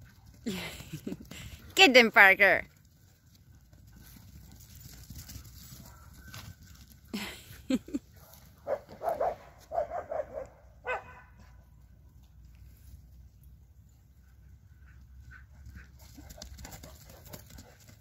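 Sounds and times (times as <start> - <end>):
dog barking and yipping: 8.6 - 11.3.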